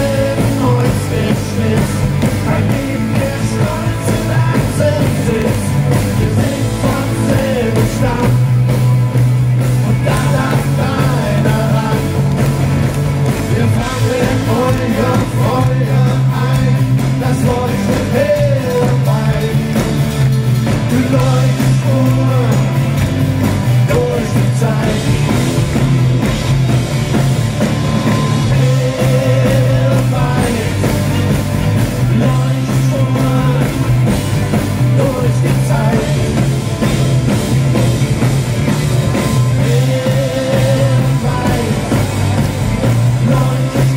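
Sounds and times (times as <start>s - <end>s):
person singing: 0.0s - 8.8s, 9.9s - 12.6s, 13.2s - 20.1s, 20.7s - 23.0s, 23.8s - 25.7s, 28.0s - 31.4s, 32.0s - 36.6s, 39.3s - 43.9s
live rock band playing: 0.0s - 43.9s.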